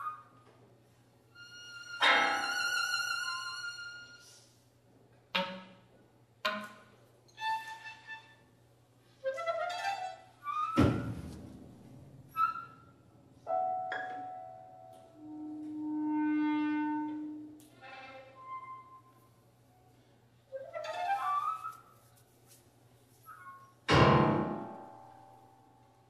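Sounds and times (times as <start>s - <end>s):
contemporary chamber music: 12.4s - 19.2s.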